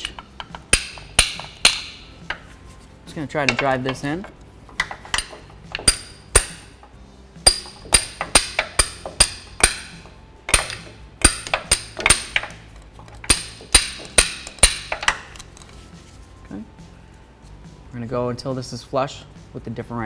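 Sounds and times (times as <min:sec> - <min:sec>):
hammer striking metal punch: 0:00.0 - 0:02.4, 0:04.8 - 0:06.8, 0:07.4 - 0:12.6, 0:13.2 - 0:15.2.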